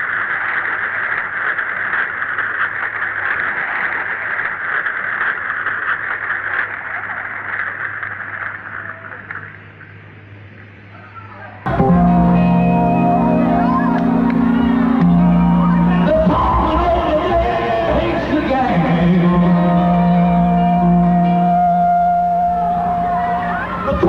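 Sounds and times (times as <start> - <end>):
low mains hum: 6.3 - 24.0
audience applauding and cheering: 11.7 - 24.0.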